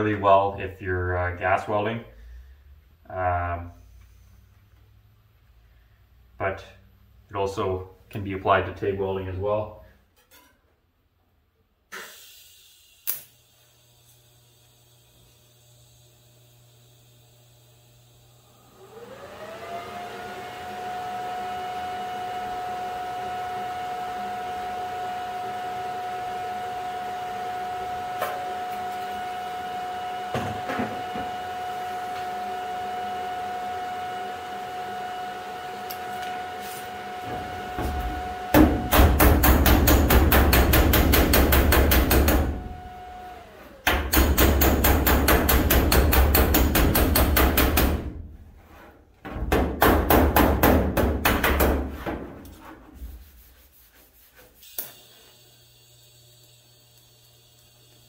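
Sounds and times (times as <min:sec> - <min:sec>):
welding hum: 0:12.4 - 0:18.7, 0:54.6 - 0:58.0
rapid hammer strikes on metal: 0:38.5 - 0:42.6, 0:43.9 - 0:48.1, 0:49.5 - 0:51.9.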